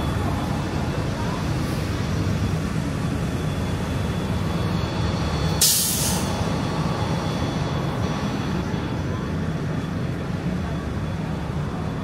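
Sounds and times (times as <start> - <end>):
bus engine rumbling: 0.0 - 12.0
air brakes hissing: 5.6 - 6.5.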